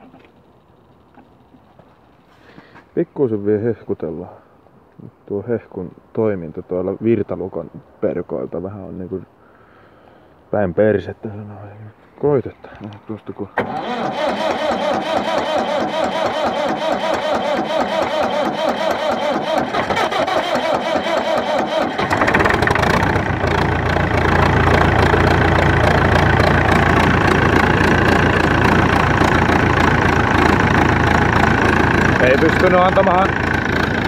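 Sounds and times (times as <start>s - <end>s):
starter cranking diesel engine: 13.6s - 34.0s
tractor diesel engine running: 13.6s - 34.0s.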